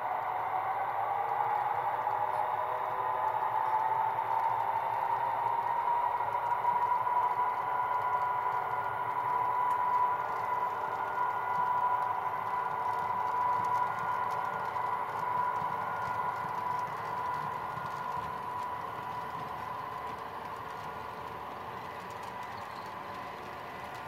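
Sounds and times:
model train diesel engine hum: 0.0 - 24.0
model wheels clicking over rails: 8.0 - 24.0.

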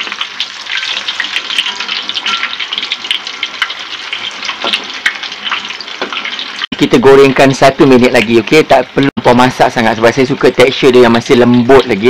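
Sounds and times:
tofu sizzling in hot oil: 0.0 - 6.7.

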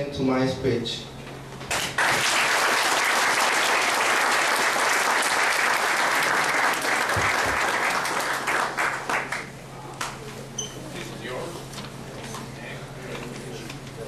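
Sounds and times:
audience applauding: 1.7 - 9.6.

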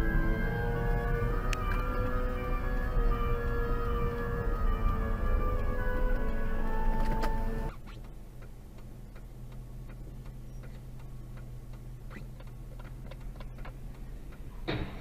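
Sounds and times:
low engine hum: 0.0 - 15.0
faint irregular ticking: 1.0 - 14.7.

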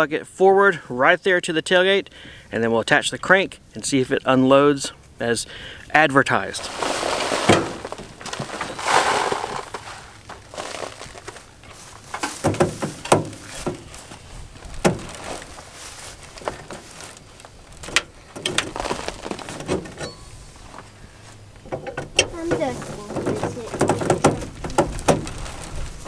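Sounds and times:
metal clicks and knocks: 12.1 - 13.9, 21.6 - 25.4.

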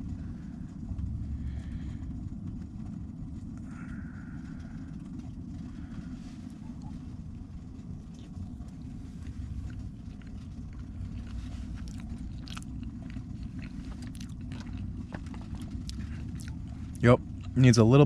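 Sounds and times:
steady low rumble: 0.0 - 18.0
person chewing food: 8.0 - 17.6.

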